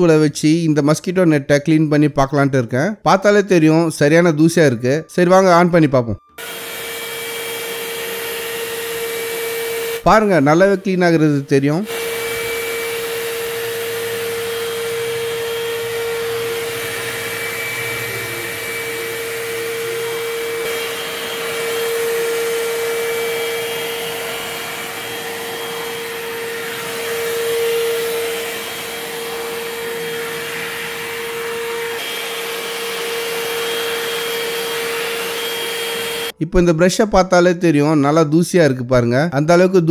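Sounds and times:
handheld vacuum cleaner whining: 6.3 - 36.4.

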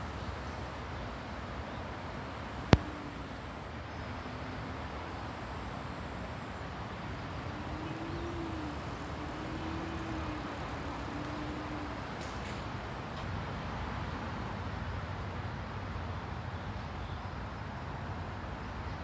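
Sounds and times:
faint hums: 0.0 - 13.3
distant road traffic rumble: 0.0 - 19.0.

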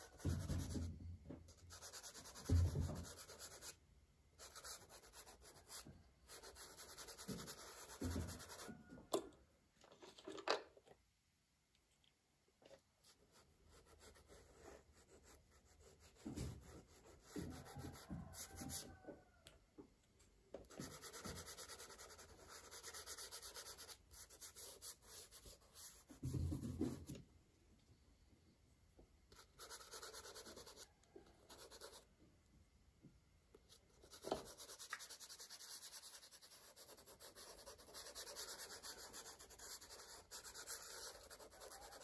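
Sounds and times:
crayon scratching on paper: 4.4 - 8.7, 20.8 - 26.2, 29.4 - 30.8, 31.5 - 32.0, 34.0 - 42.0.

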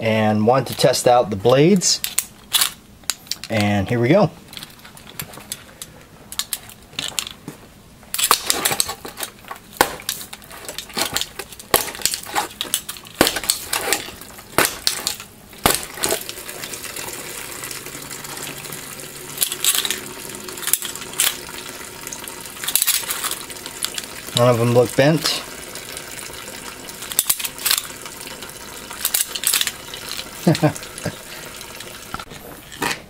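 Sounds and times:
metal blades clinking and rattling: 8.2 - 16.3, 19.4 - 20.0, 22.6 - 25.2, 29.0 - 30.6
blades puncturing paper carton: 9.8 - 16.4.

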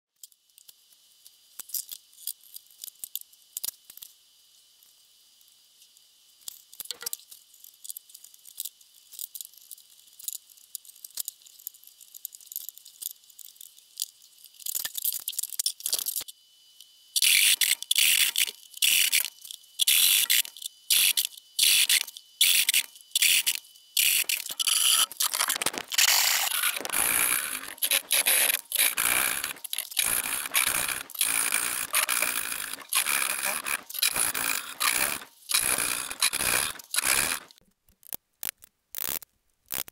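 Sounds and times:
hand saw rasping strokes: 23.4 - 37.5
faint scratches of marking out: 25.9 - 37.5.

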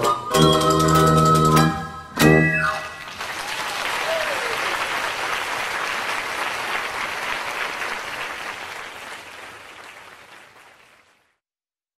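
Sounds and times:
audience applauding: 2.7 - 11.4.

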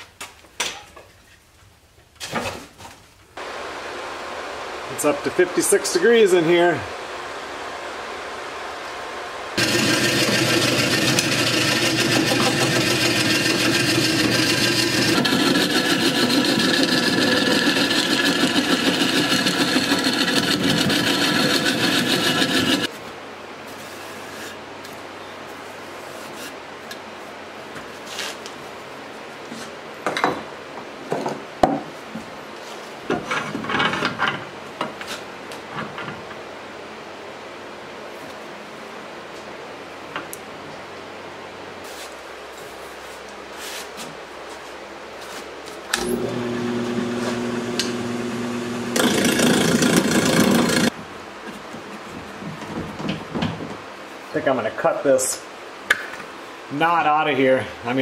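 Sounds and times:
lathe motor hum: 6.9 - 22.9, 46.0 - 50.9
chisel cutting wood on lathe: 9.6 - 22.9, 46.0 - 50.9.

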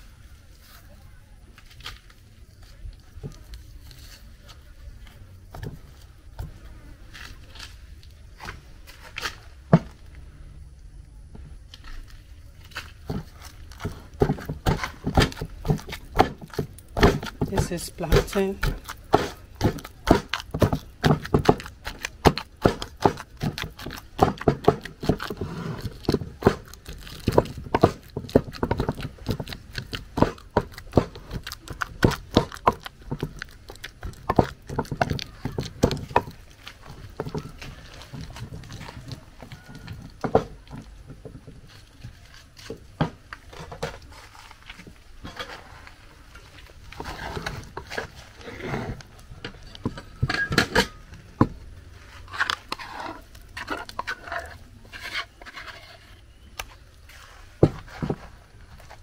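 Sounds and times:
cooking utensils knocking and clicking: 13.9 - 41.7, 49.4 - 51.6.

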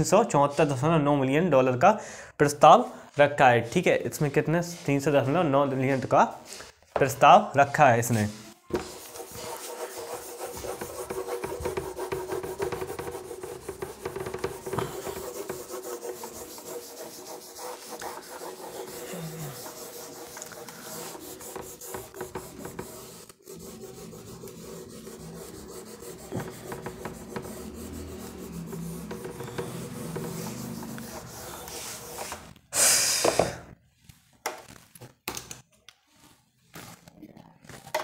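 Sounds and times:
eraser rubbing on whiteboard: 8.1 - 32.6.

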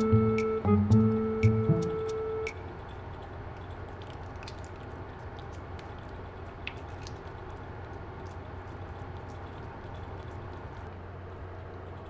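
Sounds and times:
steady low hum: 0.0 - 12.0
cat tongue licking: 3.1 - 10.9.

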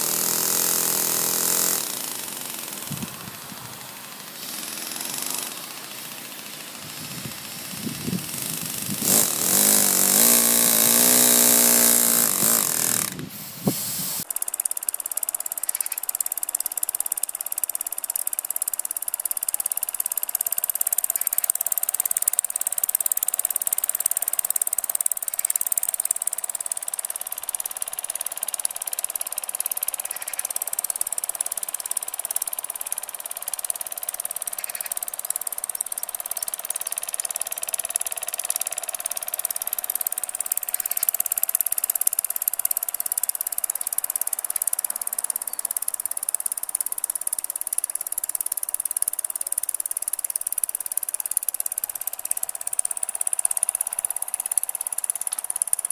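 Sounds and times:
steam hiss: 0.0 - 10.3, 11.0 - 14.3
model steam engine chuffing: 0.0 - 55.9.

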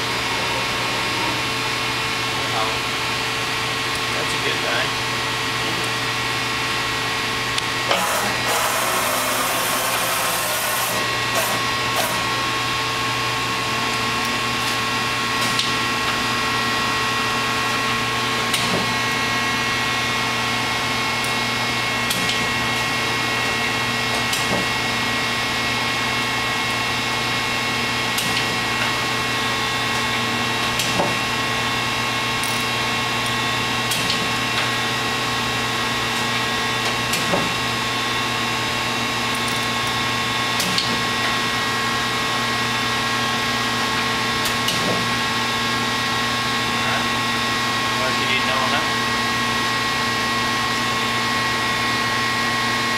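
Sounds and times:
lathe machine hum with whining: 0.0 - 52.9.

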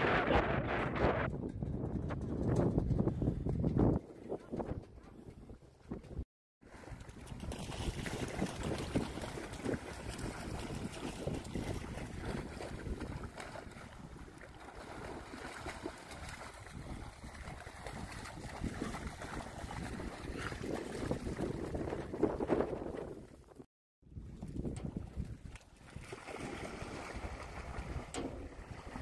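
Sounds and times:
dogs splashing through water: 6.7 - 22.8, 25.1 - 29.0.

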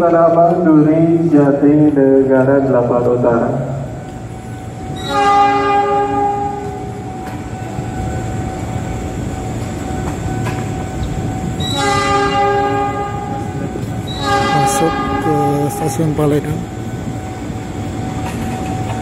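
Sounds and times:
train rumbling: 0.0 - 19.0
train horn blasts: 4.9 - 7.9, 11.1 - 16.6.

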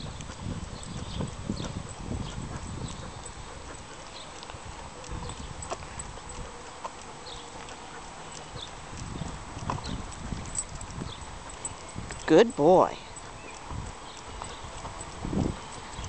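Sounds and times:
footsteps on concrete: 0.0 - 12.3
dog claws clicking: 2.4 - 12.3.

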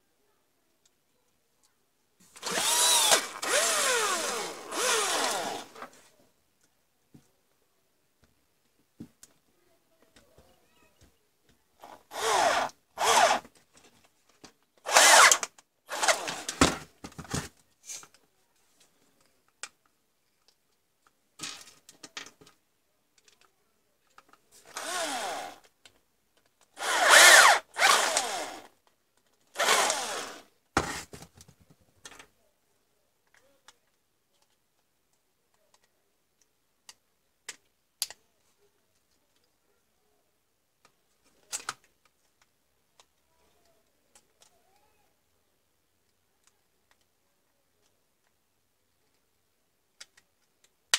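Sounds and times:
cordless drill spinning: 2.4 - 5.8, 11.8 - 13.5, 14.9 - 16.6, 24.7 - 25.7, 26.8 - 28.7, 29.5 - 30.5.

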